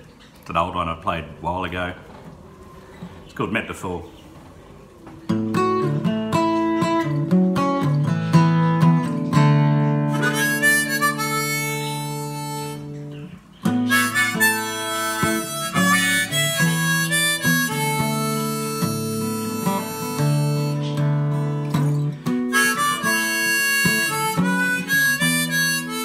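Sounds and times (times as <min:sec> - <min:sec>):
strummed acoustic guitar: 0:05.3 - 0:26.0
harmonica playing long notes: 0:09.9 - 0:13.1, 0:13.7 - 0:26.0.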